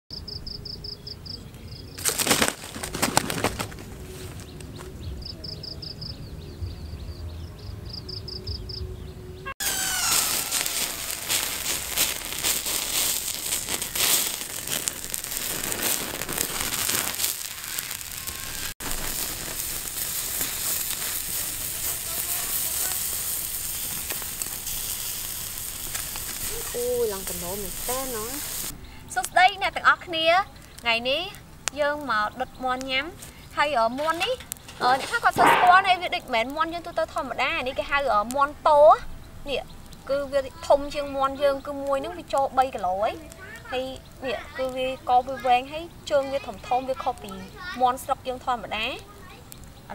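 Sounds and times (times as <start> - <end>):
insects chirping: 0.1 - 4.2, 9.6 - 31.1
wood fire crackling: 0.2 - 6.0, 9.6 - 49.9
chicken wings flapping: 2.0 - 4.5.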